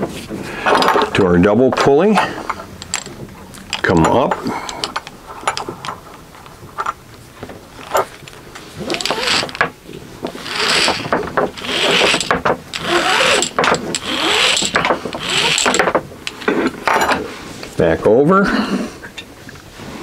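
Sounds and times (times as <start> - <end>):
pulley block clicks and rattles: 2.8 - 6.9, 8.8 - 9.7, 10.3 - 17.0
rope rasping through pulley: 7.8 - 16.8.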